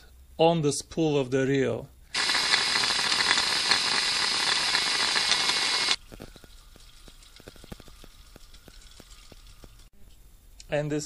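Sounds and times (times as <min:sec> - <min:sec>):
fishing line winding hiss: 0:02.1 - 0:06.0
fishing reel clicking: 0:02.2 - 0:06.0.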